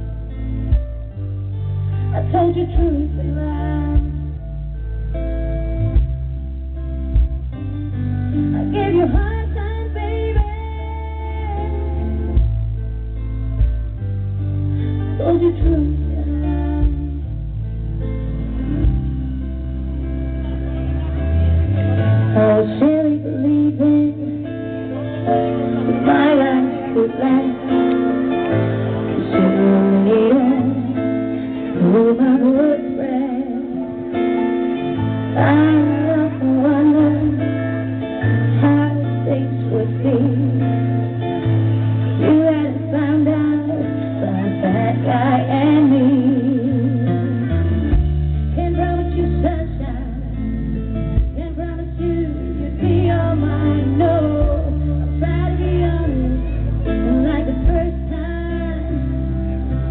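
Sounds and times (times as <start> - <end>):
acoustic guitar: 0.0 - 59.9
sustained bass notes: 0.0 - 59.9
woman singing into a microphone: 2.0 - 4.5, 8.3 - 12.8, 15.0 - 17.6, 22.2 - 59.9.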